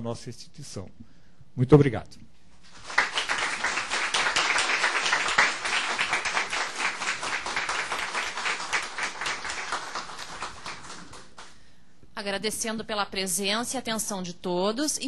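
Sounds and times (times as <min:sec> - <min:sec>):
small group applauding: 0:02.7 - 0:11.6.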